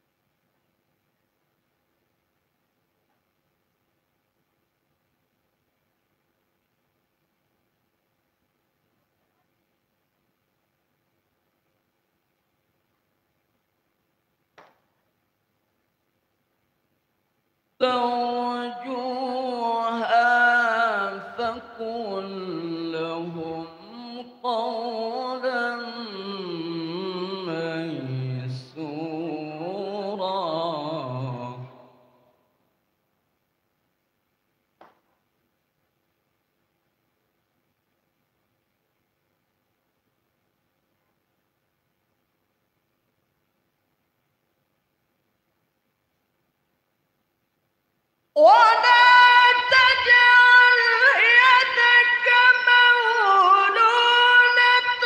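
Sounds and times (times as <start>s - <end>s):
man chanting through microphone: 17.8s - 31.8s
man reciting melodically: 17.8s - 32.0s, 48.4s - 55.0s.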